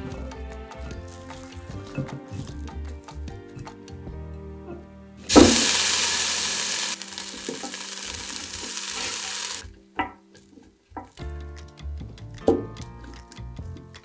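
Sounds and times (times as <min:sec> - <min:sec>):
background music: 0:00.0 - 0:14.0
food sizzling hiss: 0:05.3 - 0:09.6.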